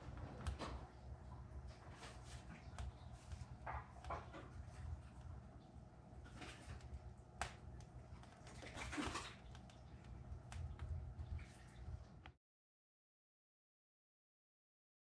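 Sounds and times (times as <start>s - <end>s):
faint clicks and taps: 0.0s - 8.8s, 9.4s - 12.4s
low hum: 0.0s - 12.4s.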